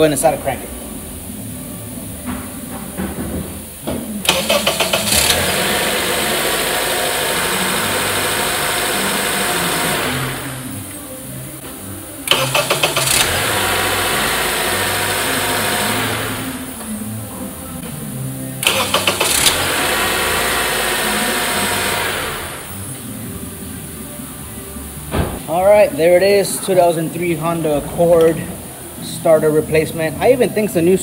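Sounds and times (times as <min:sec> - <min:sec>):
car engine cranking and starting: 0:04.2 - 0:10.8, 0:12.2 - 0:16.8, 0:18.6 - 0:22.9
car engine running: 0:04.3 - 0:10.7, 0:12.2 - 0:16.7, 0:18.6 - 0:22.8.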